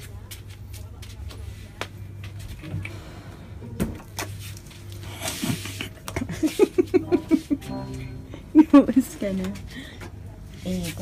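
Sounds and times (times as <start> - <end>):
person laughing: 5.4 - 7.8
low hum: 7.0 - 9.2.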